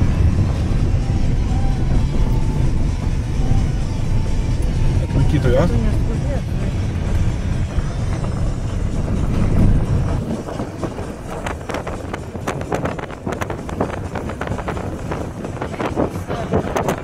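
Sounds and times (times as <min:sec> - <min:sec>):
gravel crackling under tyres: 0:00.0 - 0:17.0
wind buffeting microphone: 0:00.0 - 0:17.0.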